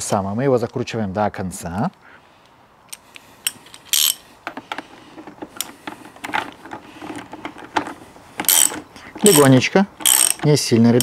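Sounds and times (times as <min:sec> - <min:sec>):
wrench clicking on metal bolt: 0:02.9 - 0:04.2, 0:08.4 - 0:11.0.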